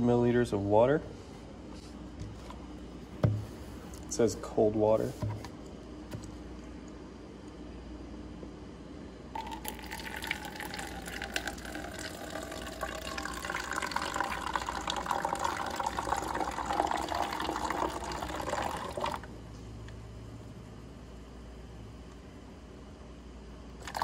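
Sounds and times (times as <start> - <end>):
water pouring into plastic bottle: 9.4 - 19.3.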